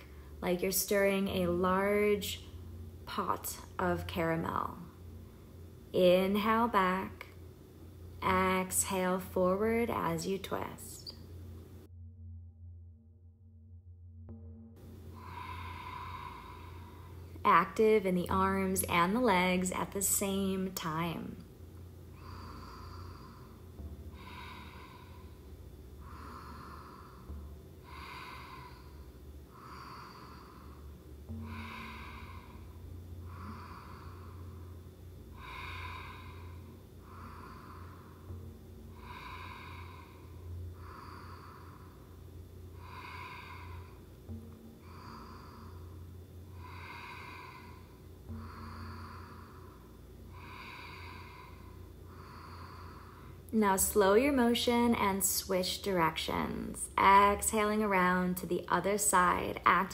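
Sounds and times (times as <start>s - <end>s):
woman breathing through the nose: 0.0s - 0.4s, 15.0s - 17.4s, 22.1s - 53.5s.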